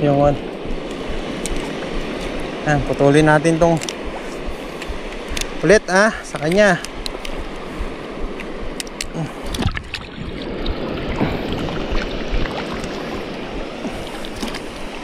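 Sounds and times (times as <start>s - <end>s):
water rushing at shoreline: 0.0s - 15.0s
microphone handling clicks: 3.7s - 5.6s, 6.2s - 7.6s, 8.2s - 10.0s.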